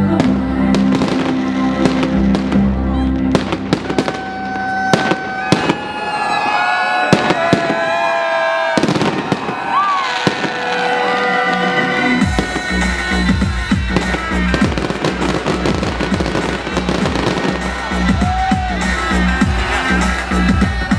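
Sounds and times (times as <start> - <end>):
music with long held notes: 0.0 - 5.2, 10.2 - 20.9.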